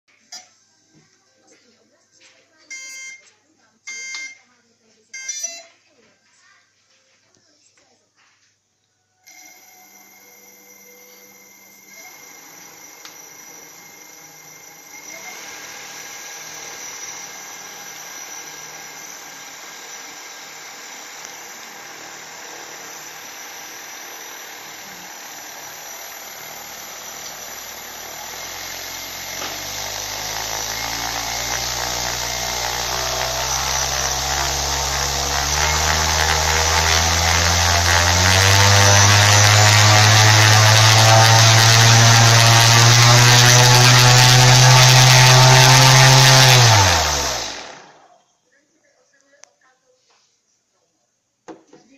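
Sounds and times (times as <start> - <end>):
electric motor spinning propeller: 9.3 - 48.2.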